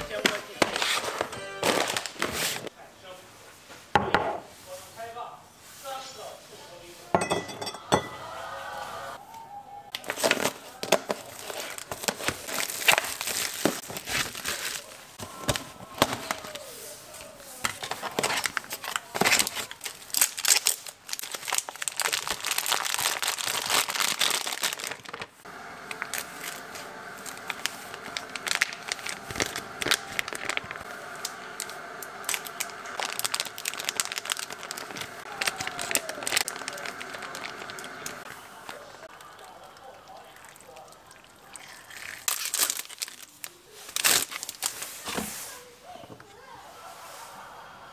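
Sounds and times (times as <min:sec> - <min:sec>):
plastic packaging crinkling: 0:00.0 - 0:02.7, 0:10.0 - 0:16.6, 0:17.6 - 0:40.7, 0:41.5 - 0:45.1
sachets torn open: 0:09.9 - 0:15.0, 0:17.8 - 0:25.3, 0:25.9 - 0:38.8, 0:41.9 - 0:44.9.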